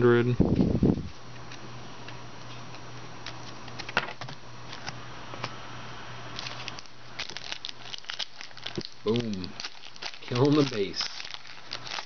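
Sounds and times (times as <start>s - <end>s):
steady low hum: 0.0s - 12.0s
cards being flipped and shuffled: 6.4s - 12.0s.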